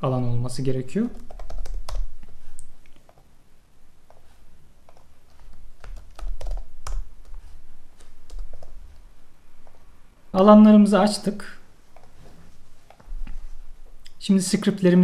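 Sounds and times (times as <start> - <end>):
typing on computer keyboard: 1.1 - 2.1, 4.9 - 7.4, 8.2 - 8.8.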